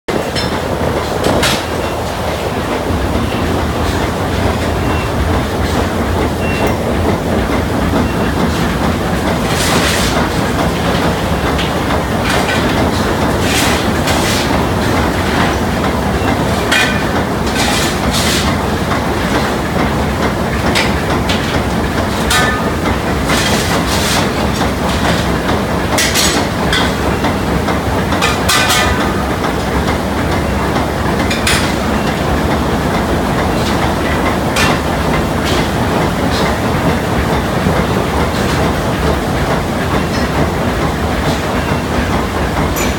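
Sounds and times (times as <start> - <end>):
steam engine rhythmic clatter: 0.1 - 42.9
sharp metallic clanks: 16.2 - 18.5, 22.2 - 25.3, 26.0 - 27.3, 28.2 - 29.3.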